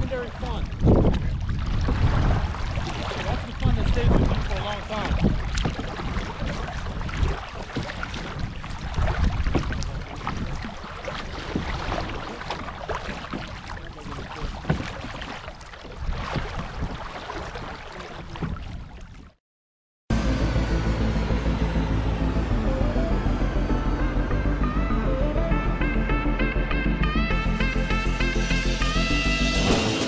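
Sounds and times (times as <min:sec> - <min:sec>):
water splashes and drips: 0:00.0 - 0:19.4
wind rumble on microphone: 0:00.0 - 0:19.4
background music: 0:20.1 - 0:30.0.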